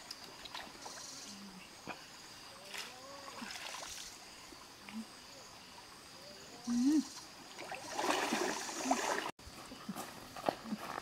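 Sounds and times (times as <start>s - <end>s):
stream water trickling: 0.0s - 1.3s, 2.6s - 9.4s
splashing in water: 2.6s - 4.2s, 7.5s - 9.3s.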